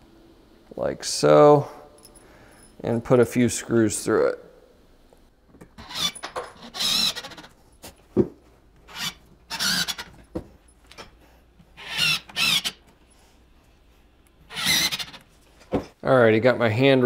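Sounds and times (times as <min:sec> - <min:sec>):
screws driven into wood: 0:05.8 - 0:07.6, 0:08.9 - 0:10.1, 0:11.8 - 0:12.8, 0:14.5 - 0:15.3.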